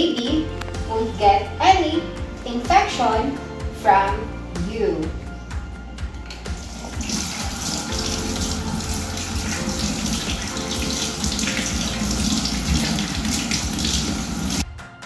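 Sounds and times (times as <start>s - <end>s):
hands being rinsed: 6.2s - 14.6s
tap water running into steel basin: 6.3s - 14.6s.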